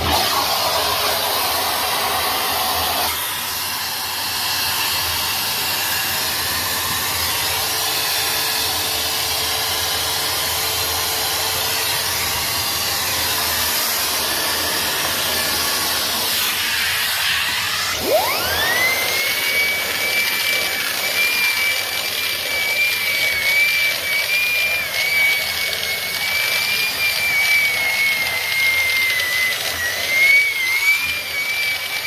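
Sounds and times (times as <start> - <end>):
vacuum cleaner running: 0.0 - 32.0.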